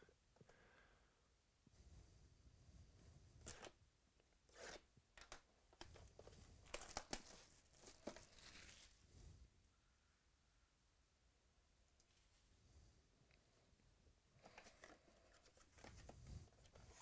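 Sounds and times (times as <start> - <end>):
plastic shrink wrap crinkling: 4.5 - 9.0.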